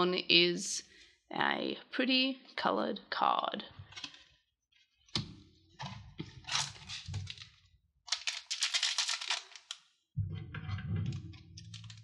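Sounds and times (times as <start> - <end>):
plastic wrapper crinkling: 6.4 - 9.9, 11.6 - 12.0.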